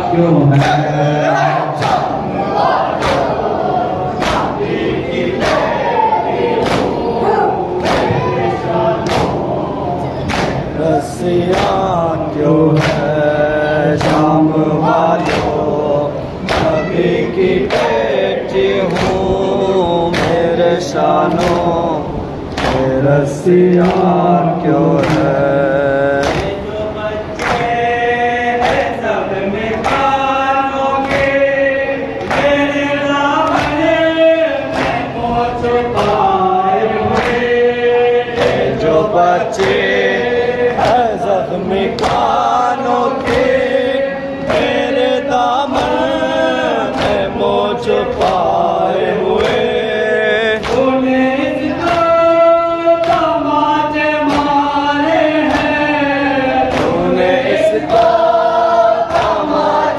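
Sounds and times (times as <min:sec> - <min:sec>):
crowd chanting in chorus: 0:00.0 - 0:59.9
men singing lament into microphone: 0:00.0 - 0:59.9
hands slapping chests: 0:03.0 - 0:03.4.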